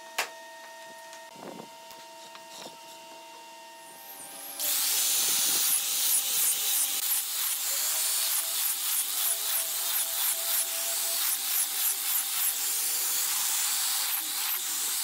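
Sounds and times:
angle grinder sanding wood: 0:04.0 - 0:15.0.

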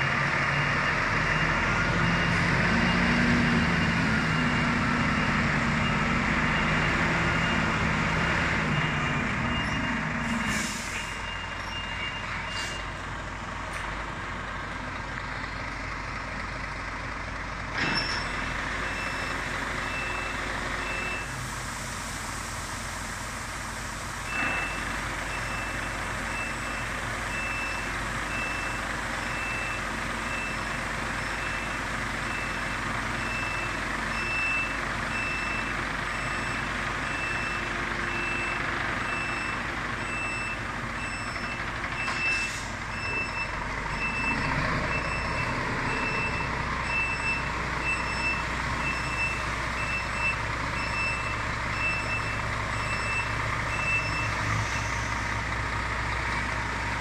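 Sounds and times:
diesel truck engine running: 0:00.0 - 0:57.0
reversing alarm beeps: 0:08.7 - 0:12.9, 0:18.0 - 0:21.4, 0:24.3 - 0:54.9
short air hiss: 0:10.4 - 0:11.2.

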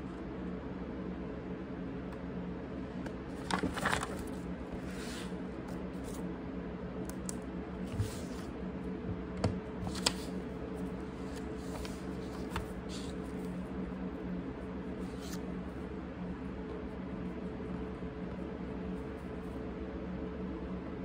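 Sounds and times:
steady low hum: 0:00.0 - 0:21.0
paper pages rustling: 0:03.4 - 0:06.2, 0:09.8 - 0:13.6, 0:15.0 - 0:15.5.

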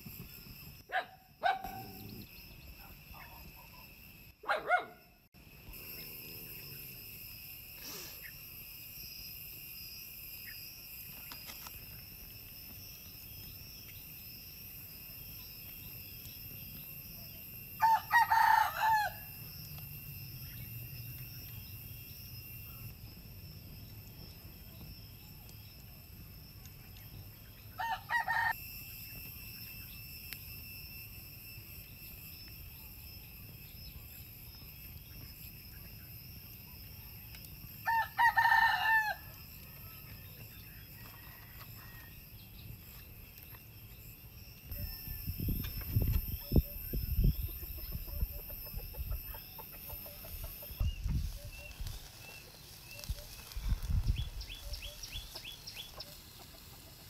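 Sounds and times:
steady high-pitched hum: 0:00.0 - 0:56.4
rooster crowing: 0:17.8 - 0:19.4, 0:27.8 - 0:28.6, 0:37.8 - 0:39.9.

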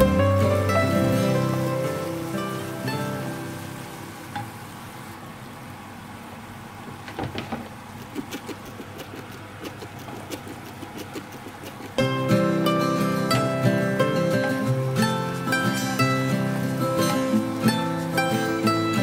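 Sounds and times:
food sizzling in a pan: 0:00.0 - 0:07.1, 0:11.5 - 0:19.0.

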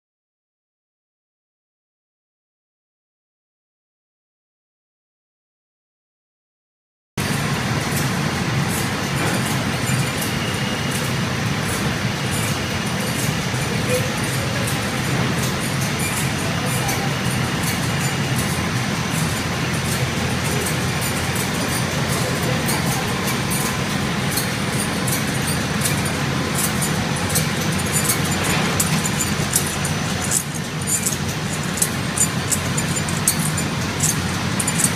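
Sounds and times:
printing machine running: 0:07.2 - 0:34.9
light irregular ticking: 0:10.8 - 0:34.9.

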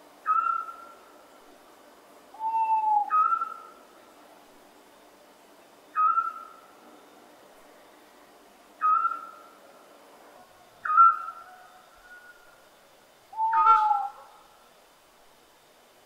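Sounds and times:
owl calling: 0:00.2 - 0:01.0, 0:02.4 - 0:03.8, 0:05.9 - 0:06.6, 0:08.8 - 0:09.6, 0:10.8 - 0:12.6, 0:13.3 - 0:14.5.

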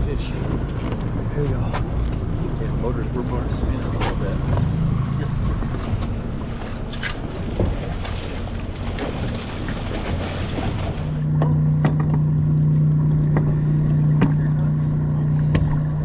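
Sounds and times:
boat motor humming: 0:00.0 - 0:16.0.

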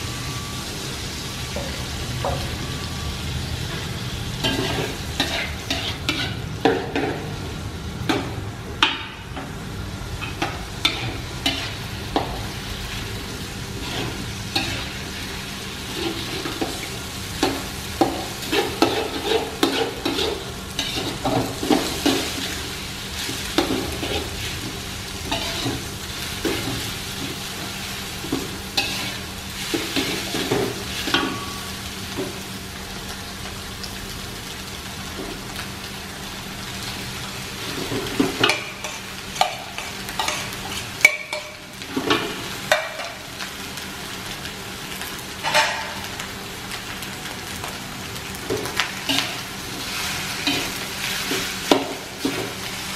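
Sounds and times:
food sizzling in a wok: 0:00.0 - 0:52.9
metal spatula scraping a wok: 0:04.5 - 0:06.4, 0:13.8 - 0:15.0, 0:18.4 - 0:22.6, 0:28.8 - 0:30.5, 0:38.5 - 0:41.6.

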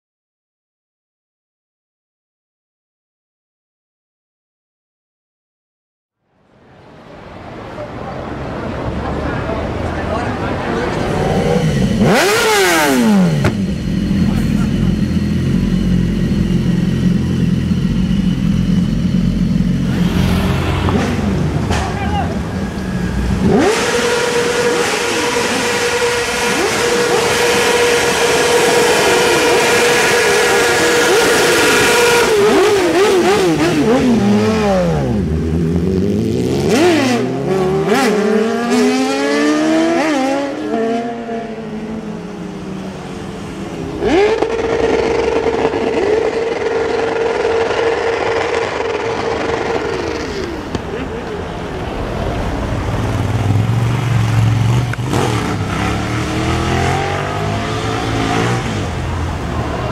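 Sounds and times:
motorcycle revving and gear changes: 0:10.5 - 0:59.9
motorcycle engine on rev limiter: 0:10.7 - 0:42.9, 0:43.7 - 0:51.4.

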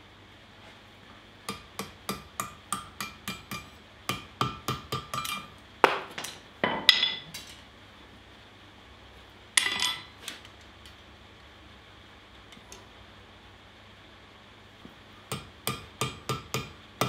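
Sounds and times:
hammer ringing on hot steel: 0:01.5 - 0:05.6, 0:15.3 - 0:16.8.

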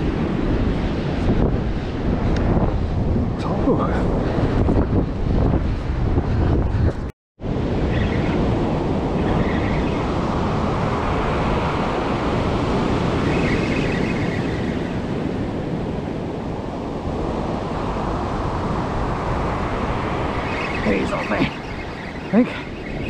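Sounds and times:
wind on microphone: 0:00.0 - 0:23.0
ocean surf breaking: 0:07.6 - 0:23.0.

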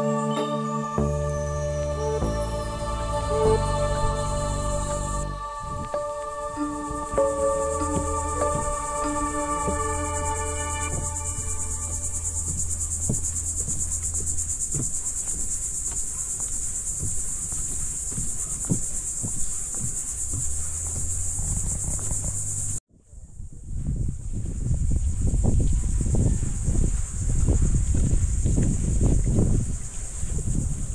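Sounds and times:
insect chorus buzzing trill: 0:00.0 - 0:22.8
footsteps on wooden boardwalk: 0:05.7 - 0:22.8, 0:25.0 - 0:30.9.

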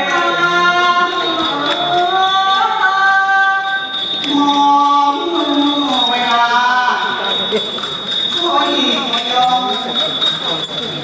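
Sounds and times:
person singing long sliding notes: 0:00.0 - 0:07.2.

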